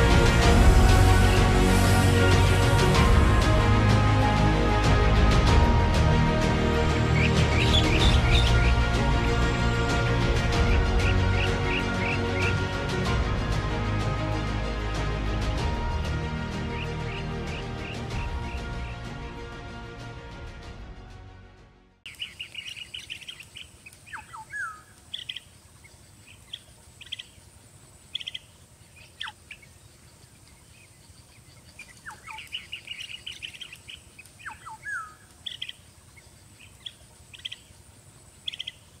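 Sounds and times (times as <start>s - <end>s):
birds trilling chirps: 6.9s - 12.7s, 22.1s - 39.0s
downward-sliding whistled calls: 22.1s - 27.4s, 28.1s - 37.7s.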